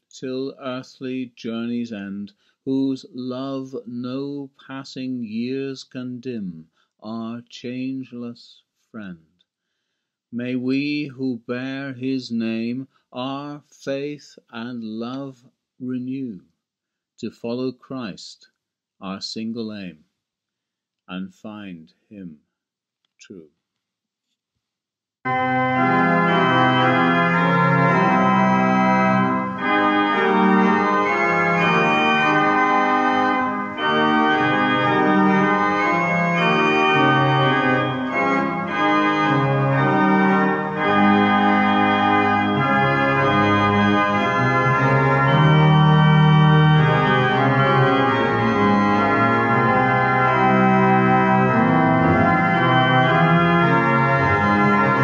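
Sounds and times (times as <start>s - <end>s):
organ playing slow chords: 25.3s - 55.0s.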